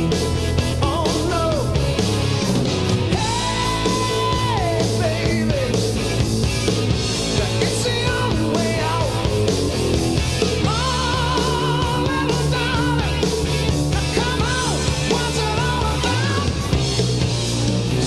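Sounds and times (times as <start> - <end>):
rock music with singing: 0.0 - 18.0.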